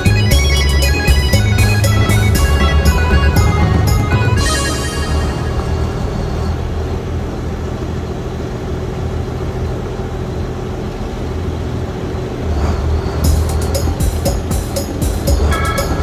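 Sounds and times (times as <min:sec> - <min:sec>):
music with a beat: 0:00.0 - 0:05.5, 0:13.2 - 0:16.0
boat engine droning: 0:00.0 - 0:16.0.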